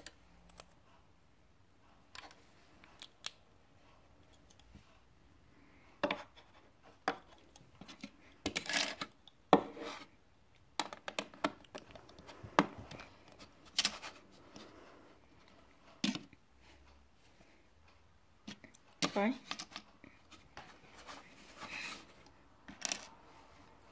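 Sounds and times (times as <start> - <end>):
pieces sliding on table: 22.7 - 23.2.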